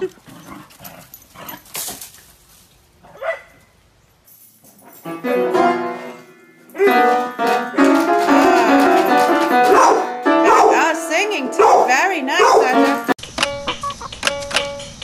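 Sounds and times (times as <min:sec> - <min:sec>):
piano note clusters: 0:05.0 - 0:14.9
dog howling: 0:09.7 - 0:10.8, 0:11.6 - 0:12.8.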